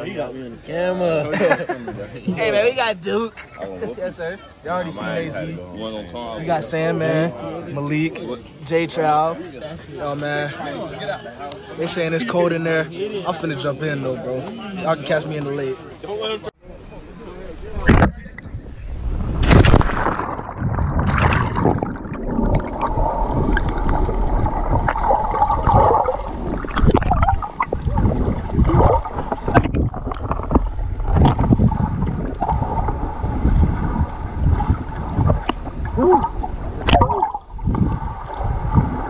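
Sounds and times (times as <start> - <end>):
underwater bubbling and gurgling: 17.6 - 39.0
water rushing burst: 17.8 - 39.0.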